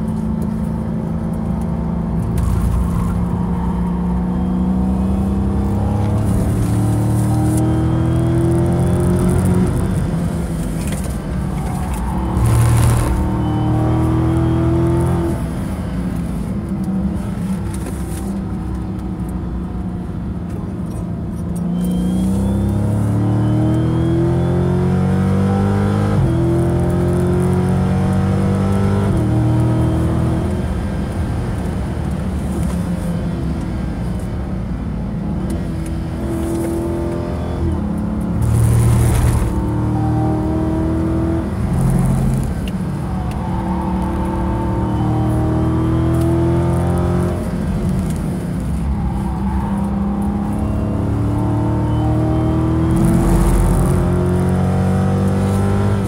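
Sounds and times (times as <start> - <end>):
car engine accelerating: 0.2 - 19.2, 35.4 - 56.0.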